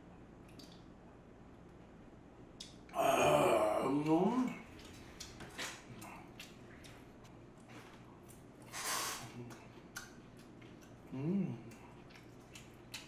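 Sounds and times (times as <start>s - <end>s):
chewing clicks and smacks: 4.0s - 7.4s, 9.4s - 13.0s.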